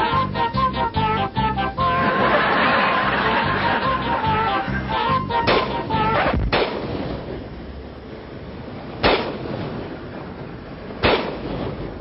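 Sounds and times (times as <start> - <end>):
moving vehicle noise: 0.0 - 12.0
sharp ringing bangs: 5.4 - 7.2, 9.0 - 9.7, 11.0 - 11.9.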